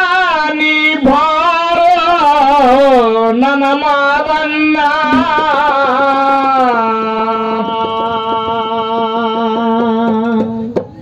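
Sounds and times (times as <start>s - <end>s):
hand drum taps: 5.0s - 6.9s, 9.8s - 11.0s.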